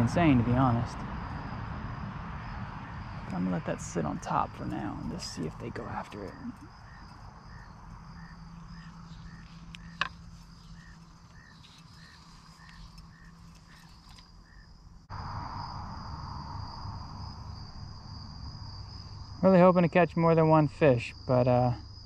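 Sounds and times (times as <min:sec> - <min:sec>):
insects whining: 0:00.0 - 0:22.0
short insect chirp: 0:04.4 - 0:20.3.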